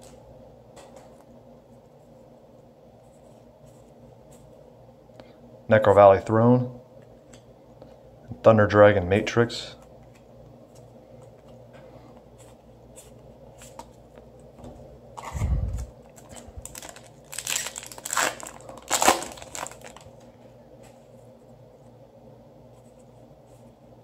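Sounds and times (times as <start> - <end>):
foil wrapper tearing: 16.3 - 20.2.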